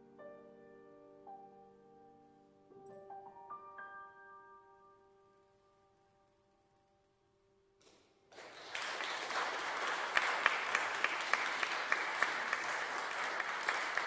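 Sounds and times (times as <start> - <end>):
audience applauding: 8.3 - 14.0.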